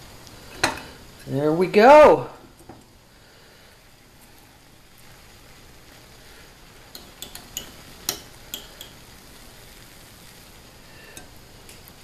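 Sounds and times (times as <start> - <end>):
metal spoon clinking on steel pan: 6.9 - 9.0.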